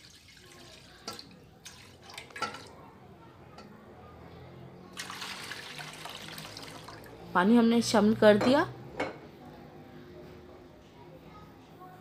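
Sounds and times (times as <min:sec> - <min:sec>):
water splashing into a metal pot: 0:00.0 - 0:02.8, 0:05.0 - 0:07.2.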